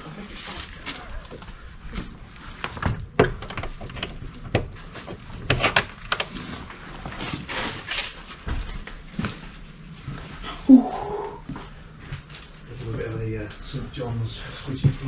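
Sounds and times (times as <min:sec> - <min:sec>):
sharp knocks and clicks: 0:02.8 - 0:06.3.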